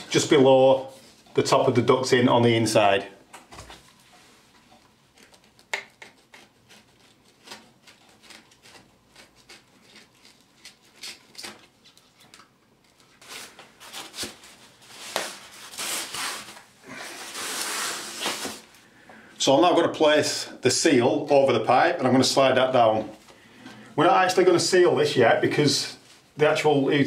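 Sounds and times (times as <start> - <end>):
foam sleeve rubbing and swishing: 14.8 - 18.7.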